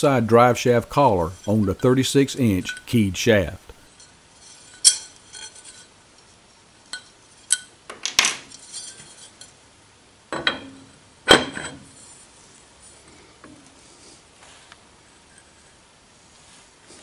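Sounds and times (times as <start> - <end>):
steel parts clinking together: 2.5 - 3.0, 4.0 - 5.9.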